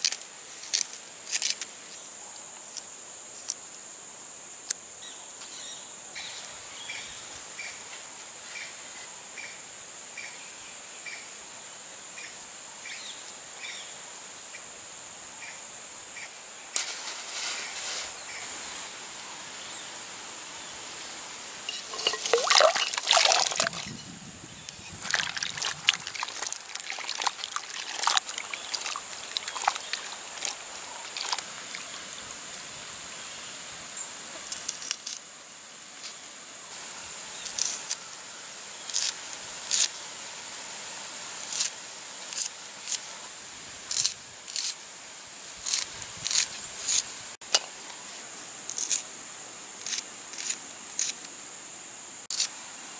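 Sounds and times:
dry crackles of shallots peeled: 0.0s - 1.7s, 25.0s - 32.6s, 34.4s - 35.2s, 45.4s - 47.1s
insect drone: 0.0s - 52.9s.

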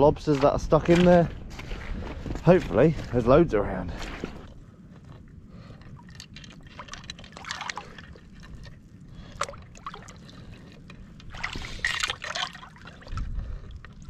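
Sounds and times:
wind rumble on microphone: 0.0s - 14.0s
seawater splashing and sloshing: 5.5s - 14.0s.

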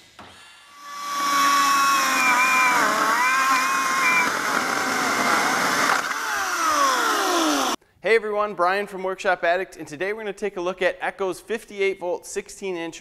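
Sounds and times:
chainsaw cutting wood: 0.8s - 7.8s.

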